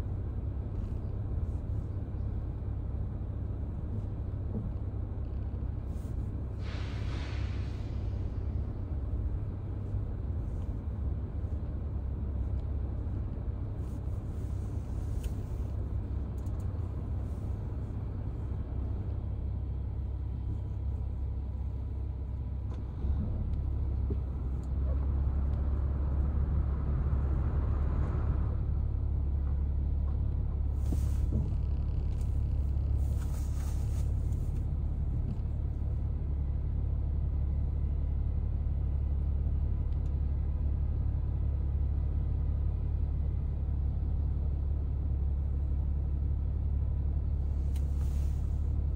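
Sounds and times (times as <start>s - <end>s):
car engine and road rumble: 0.0s - 48.9s
brief hisses: 6.6s - 8.4s.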